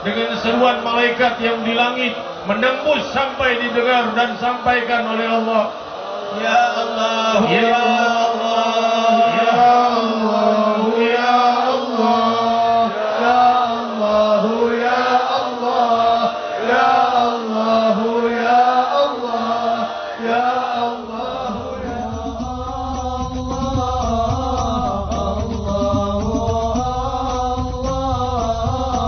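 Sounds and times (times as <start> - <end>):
men chanting: 0.0 - 29.0
low rumble: 21.4 - 29.0.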